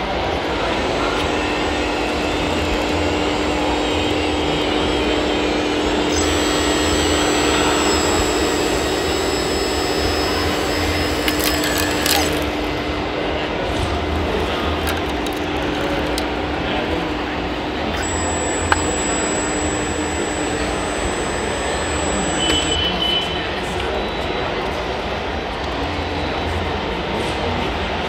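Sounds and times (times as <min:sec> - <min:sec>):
hydraulic pump whining: 0:00.3 - 0:13.0, 0:14.2 - 0:16.4, 0:17.7 - 0:22.9
higher whine: 0:00.5 - 0:12.9, 0:17.9 - 0:23.0
short clicks: 0:06.1 - 0:12.5, 0:18.0 - 0:22.8.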